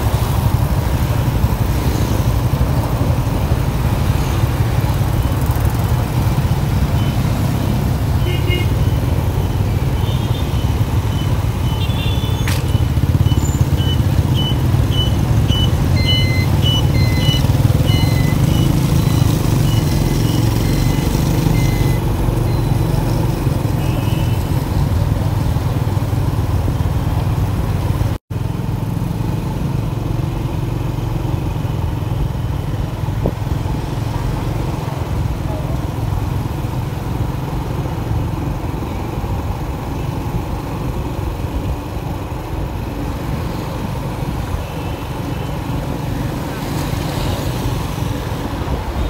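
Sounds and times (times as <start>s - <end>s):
motorbike engines rumbling: 0.0s - 49.0s
wind and road noise: 0.0s - 49.0s
short high beeps: 11.1s - 22.8s.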